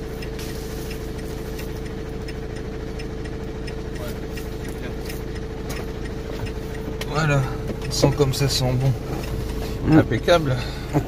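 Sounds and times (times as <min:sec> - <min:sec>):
light regular ticking: 0:00.0 - 0:11.0
van engine idling: 0:00.0 - 0:11.0.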